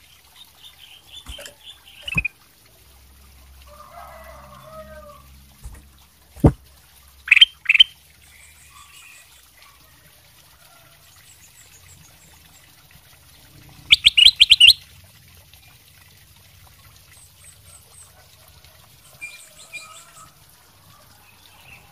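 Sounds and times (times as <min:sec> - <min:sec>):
sharp knock: 0:06.4 - 0:06.6
bird singing: 0:13.9 - 0:14.8.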